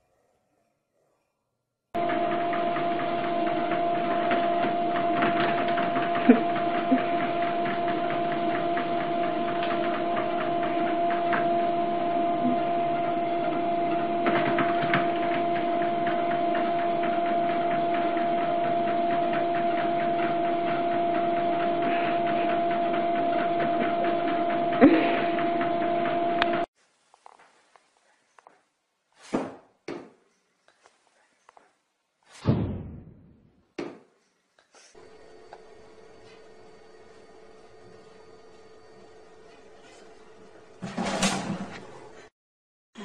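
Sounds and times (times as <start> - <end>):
treadmill motor humming: 2.0 - 26.7, 35.0 - 42.3.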